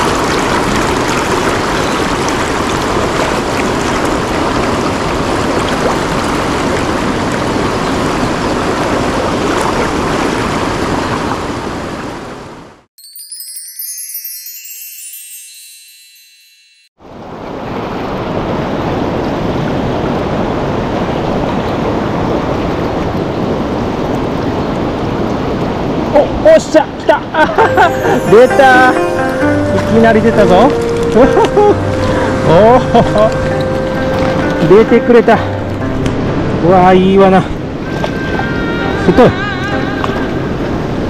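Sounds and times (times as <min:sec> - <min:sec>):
stream water rushing: 0:00.0 - 0:12.6, 0:17.0 - 0:41.0
chime descending in pitch: 0:13.0 - 0:17.0, 0:27.6 - 0:36.0.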